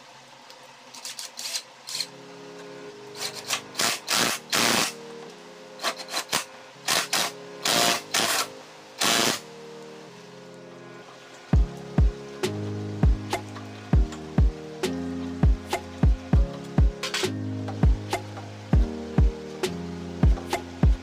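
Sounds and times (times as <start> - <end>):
faint background music: 0.0 - 21.0
fork tube rasping in clamps: 1.0 - 2.1.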